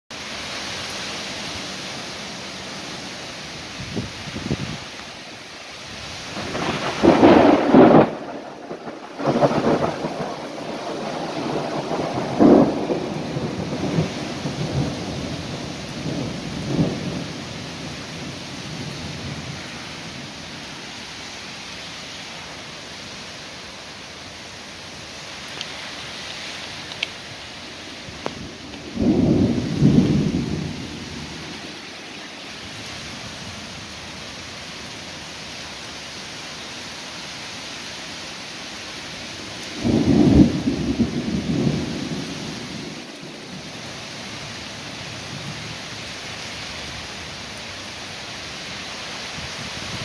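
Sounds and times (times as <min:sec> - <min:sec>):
heavy rain: 0:00.1 - 0:50.0
thunder rumbling: 0:05.9 - 0:20.7, 0:26.9 - 0:33.8, 0:39.6 - 0:43.8.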